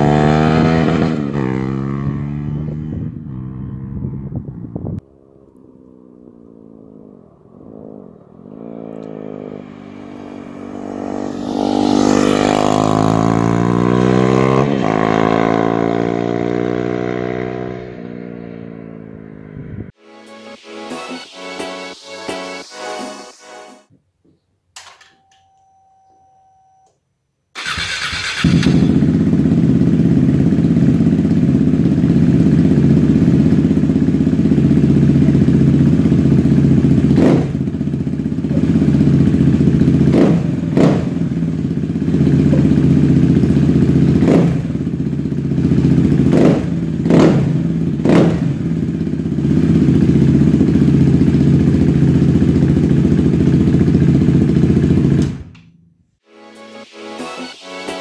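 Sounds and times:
motorcycle engine idling: 27.6s - 56.0s.

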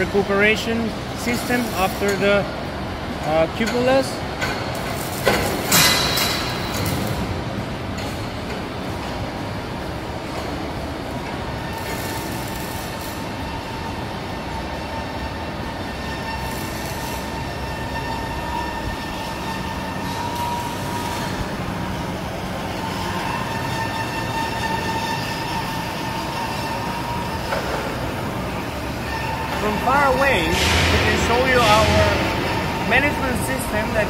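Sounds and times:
machinery noise: 0.0s - 34.0s
high whine: 11.6s - 34.0s.

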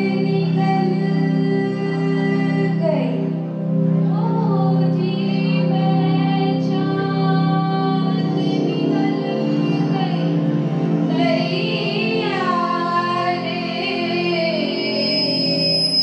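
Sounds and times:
women singing over a pa: 4.1s - 10.4s, 11.1s - 16.0s.

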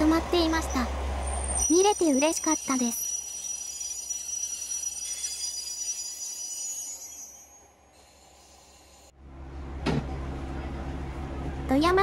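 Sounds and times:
train wheels squealing: 1.2s - 9.1s.

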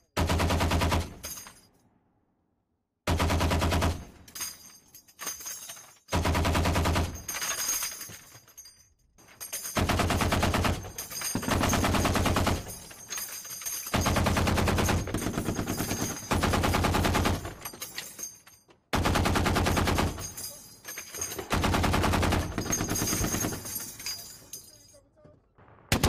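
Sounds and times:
machine gun firing bursts: 0.2s - 1.2s, 3.1s - 4.1s, 6.1s - 7.3s, 9.8s - 12.7s, 13.9s - 17.6s, 19.0s - 20.3s, 21.4s - 23.7s.

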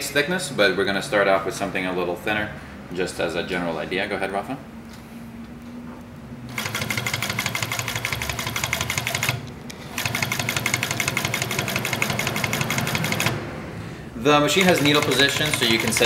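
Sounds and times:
sewing machine stitching: 6.5s - 13.4s, 14.5s - 16.0s.

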